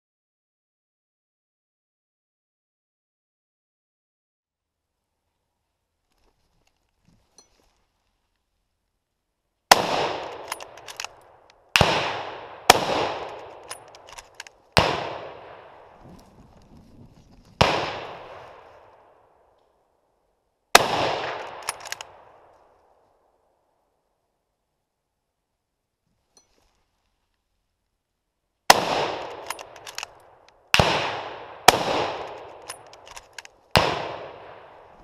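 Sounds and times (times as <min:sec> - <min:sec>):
rifle shots echoing: 0:09.7 - 0:16.2, 0:17.6 - 0:19.2, 0:20.7 - 0:22.5, 0:28.7 - 0:35.0.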